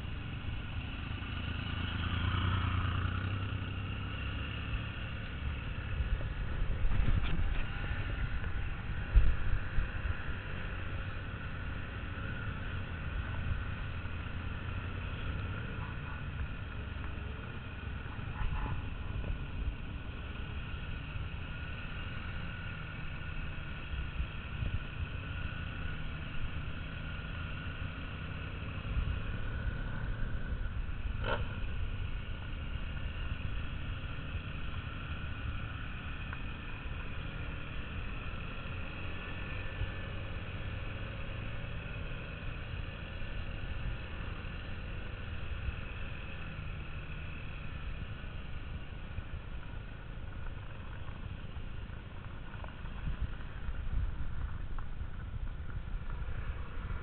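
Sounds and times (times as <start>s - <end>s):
motorcycle engine running: 0.0s - 57.0s
wind rumble on microphone: 5.8s - 11.2s, 24.0s - 27.4s, 47.8s - 57.0s.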